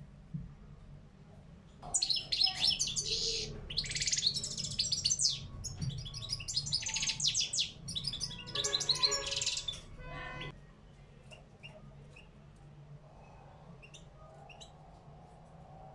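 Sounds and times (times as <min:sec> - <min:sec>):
goldfinch twittering song: 0:01.9 - 0:09.9.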